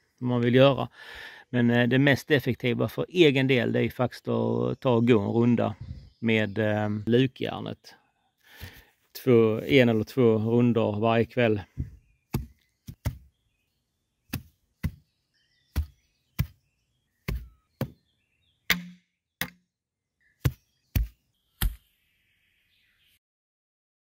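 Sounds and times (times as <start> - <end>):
hoe chopping into soil: 12.3 - 13.3, 14.3 - 15.1, 15.7 - 16.6, 17.2 - 18.0, 20.4 - 21.8.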